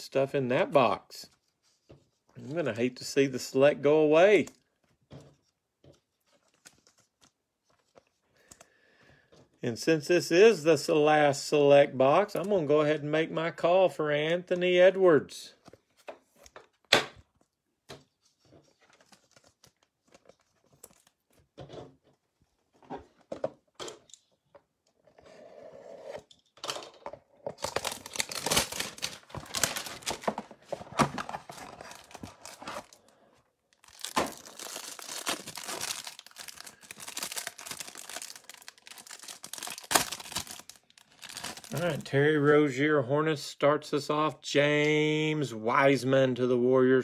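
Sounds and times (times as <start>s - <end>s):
plastic wrapper tearing and crinkling: 27.5s - 33.1s, 33.7s - 42.1s.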